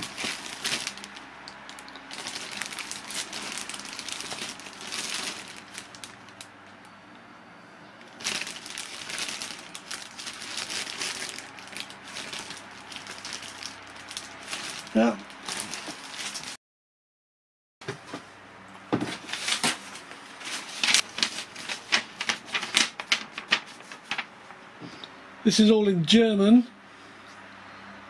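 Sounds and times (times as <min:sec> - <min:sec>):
plastic bags crinkling: 0:00.0 - 0:06.5, 0:08.0 - 0:16.6, 0:19.0 - 0:24.4.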